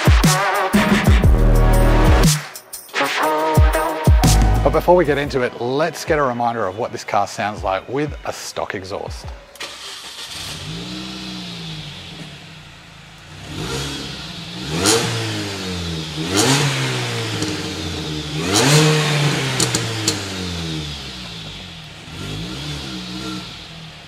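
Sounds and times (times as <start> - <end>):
car engine idling and revving: 9.6 - 24.0.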